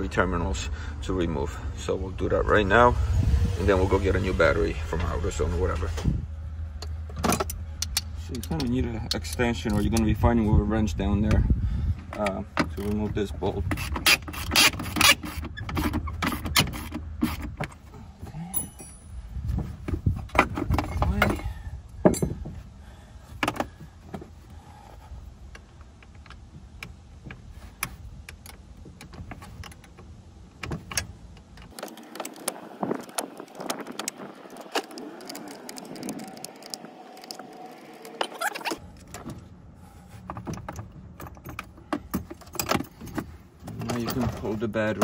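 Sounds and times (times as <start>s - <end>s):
socket wrench clinking: 18.5s - 19.2s.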